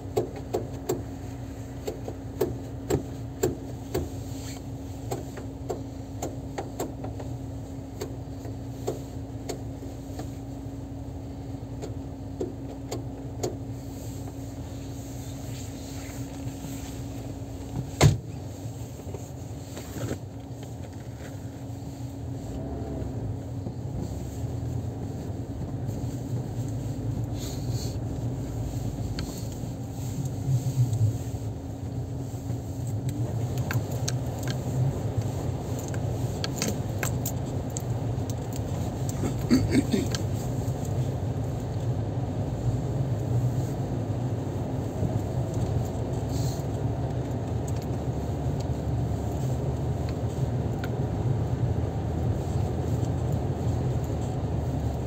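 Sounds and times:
car engine and road noise: 0.0s - 55.0s
light clicks and rattles: 32.2s - 41.9s.

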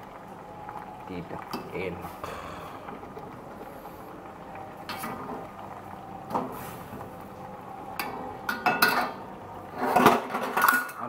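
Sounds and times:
water boiling in wok: 0.0s - 11.0s.

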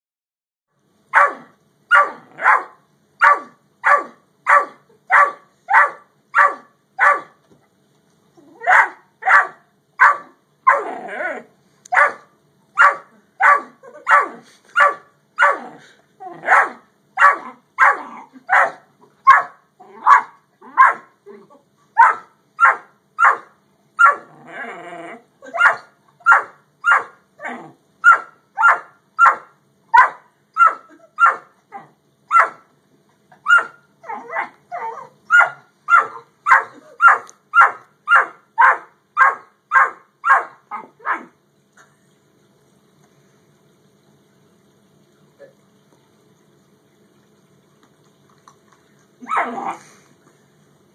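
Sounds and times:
puppy barking: 1.1s - 7.4s, 8.6s - 10.9s, 11.9s - 15.7s, 16.4s - 21.1s, 22.0s - 24.3s, 25.5s - 27.2s, 28.0s - 32.6s, 33.4s - 41.4s, 49.2s - 49.8s.

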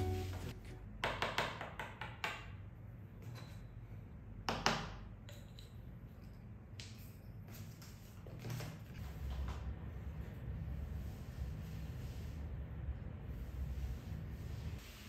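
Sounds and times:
low steady hum: 0.0s - 1.0s, 9.0s - 14.8s.

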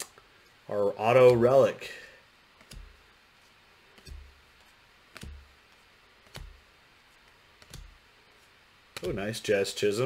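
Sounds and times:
cards tapping on table: 2.6s - 3.0s, 4.0s - 5.6s, 6.2s - 8.0s.

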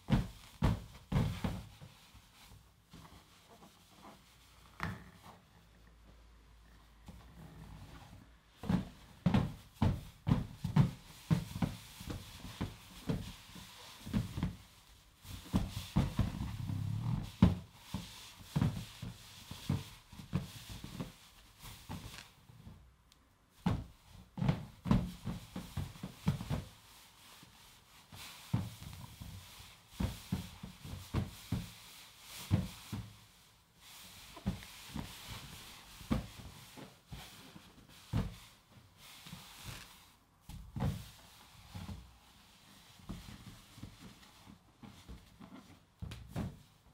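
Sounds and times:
balloon knocks and rubbing: 0.0s - 2.0s.

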